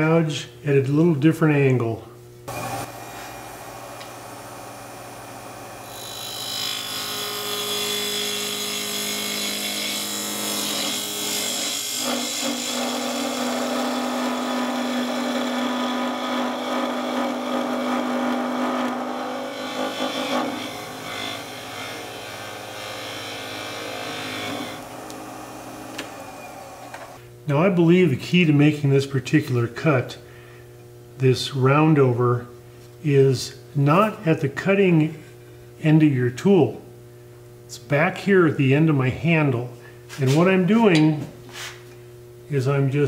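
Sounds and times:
gouge cutting spinning wood: 2.5 - 27.2
lathe humming: 2.5 - 27.2.

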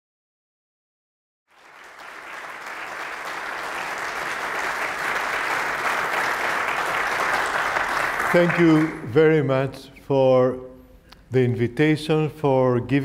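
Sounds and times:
audience applauding: 1.5 - 9.1.

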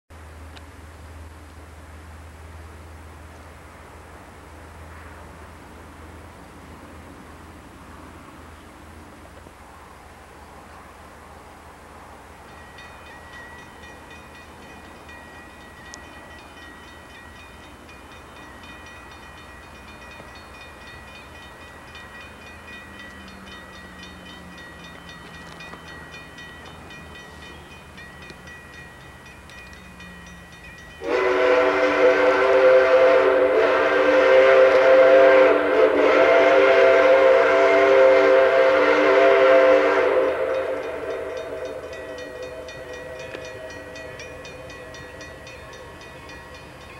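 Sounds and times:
approaching train: 0.1 - 46.9
steam locomotive whistle blast: 31.0 - 46.7.

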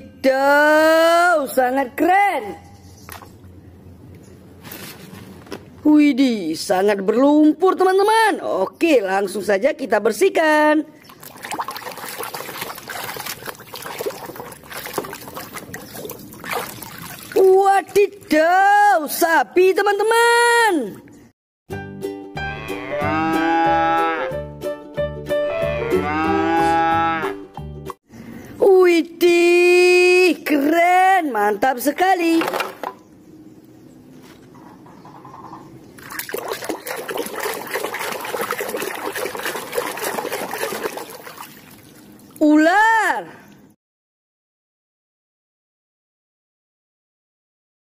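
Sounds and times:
water sloshing in a plastic tub: 10.9 - 18.4, 36.0 - 42.6.

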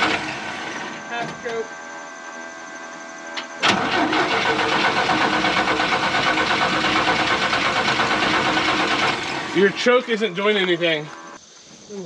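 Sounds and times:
starter motor jolt: 0.0 - 1.1, 3.6 - 11.3
truck engine rhythmic chug: 3.1 - 11.4.

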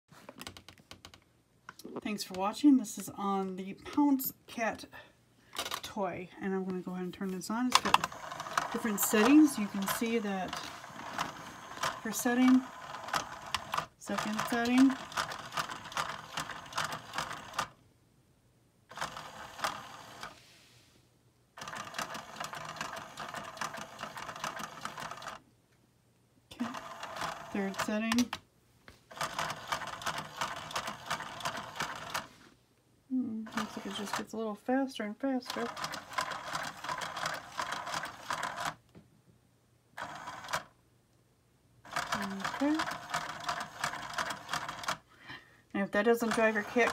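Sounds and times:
toy motor rattling clatter: 7.7 - 17.7, 18.9 - 20.3, 21.6 - 25.4, 26.6 - 28.3, 29.1 - 32.3, 33.5 - 34.3, 35.4 - 38.8, 41.9 - 45.0, 46.0 - 46.9.

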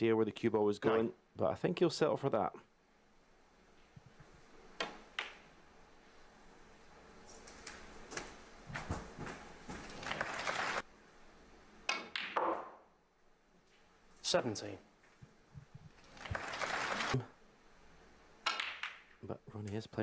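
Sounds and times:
snooker balls knocking: 11.9 - 12.9.

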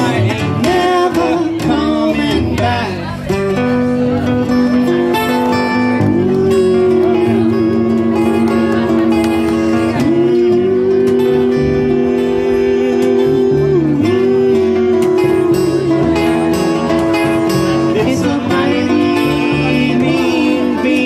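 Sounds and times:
acoustic guitar: 0.0 - 21.0
upright bass: 0.0 - 21.0
lead line of long held notes: 5.8 - 20.8.

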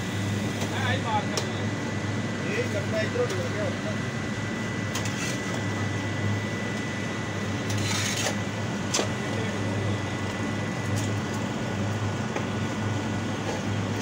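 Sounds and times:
machine humming: 0.0 - 14.0.

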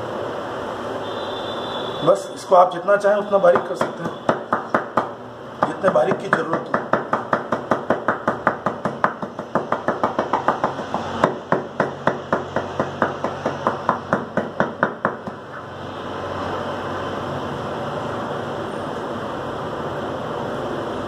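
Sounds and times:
meat chopper chopping on wood: 3.5 - 15.4.

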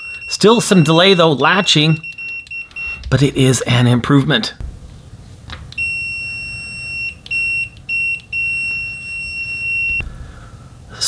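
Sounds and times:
high-pitched multimeter beep: 0.0 - 3.0, 5.8 - 10.1.

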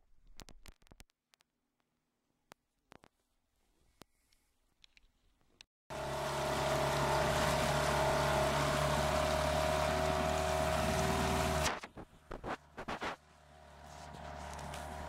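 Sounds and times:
outboard motor running: 5.9 - 11.8, 12.6 - 15.0.

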